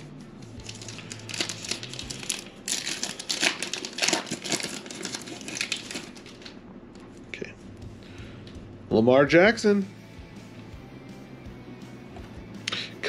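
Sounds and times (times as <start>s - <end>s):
foil wrapper tearing and crinkling: 0.6s - 6.6s.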